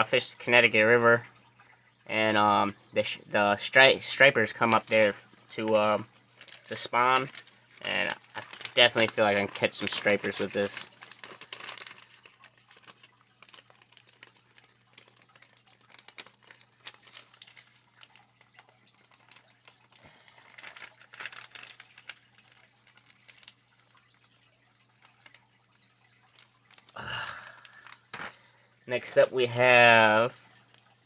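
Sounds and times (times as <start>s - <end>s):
faint steady hum: 0.0s - 31.0s
plastic package crinkling: 3.6s - 31.0s.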